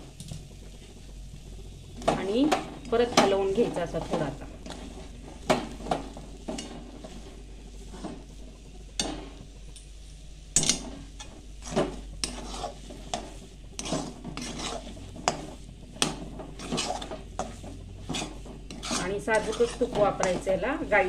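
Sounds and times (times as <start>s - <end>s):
spatula scraping metal pan: 2.8s - 8.3s, 10.6s - 21.0s.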